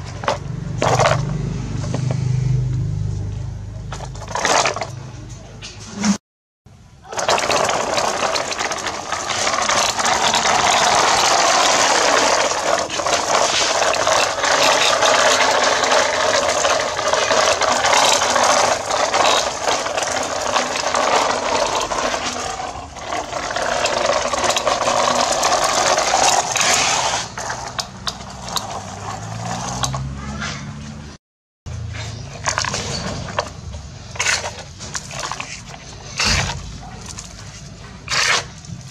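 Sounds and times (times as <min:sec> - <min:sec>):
toy truck wheels rattling on sand: 0:07.1 - 0:30.1.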